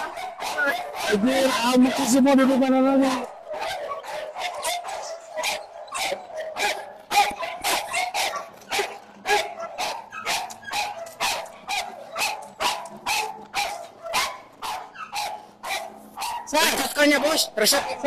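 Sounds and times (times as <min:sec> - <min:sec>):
dog barking: 0:00.0 - 0:18.0.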